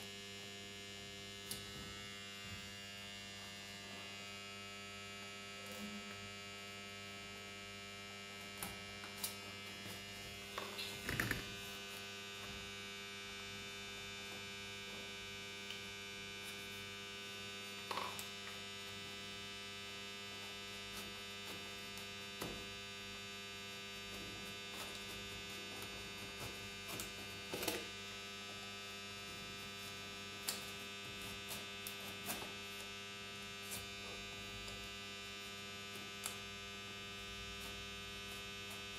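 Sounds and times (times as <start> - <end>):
steady electrical hum: 0.0 - 38.9.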